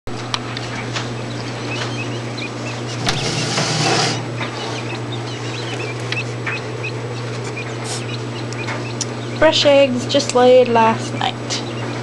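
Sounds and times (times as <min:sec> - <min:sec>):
steady low hum: 0:00.1 - 0:12.0
quail chirping: 0:00.4 - 0:12.0
loud rustling: 0:00.5 - 0:06.5.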